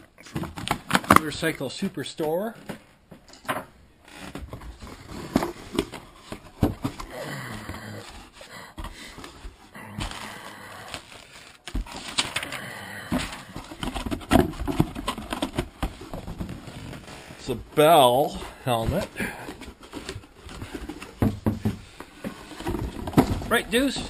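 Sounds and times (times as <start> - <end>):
cardboard and plastic rustling: 0.0 - 3.3, 4.1 - 24.0
knocks of contents: 18.8 - 24.0.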